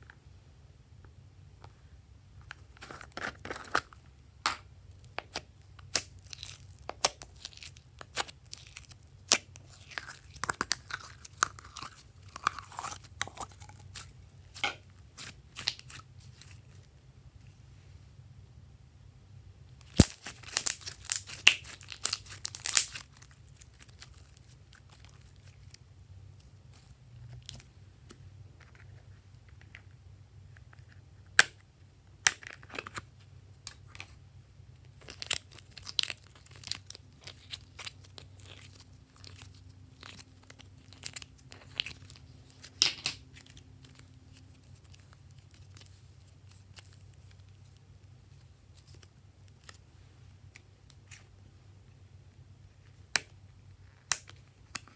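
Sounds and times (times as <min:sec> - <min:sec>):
hands squishing sticky slime: 0:04.5 - 0:16.9, 0:19.8 - 0:25.8, 0:34.9 - 0:51.3.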